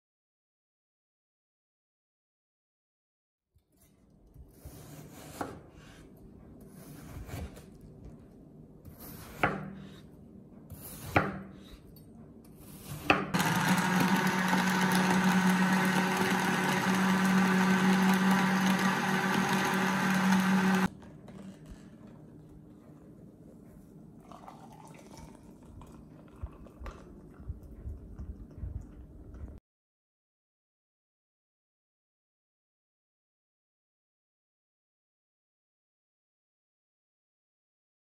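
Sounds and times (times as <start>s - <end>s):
blender motor running: 13.4s - 20.9s.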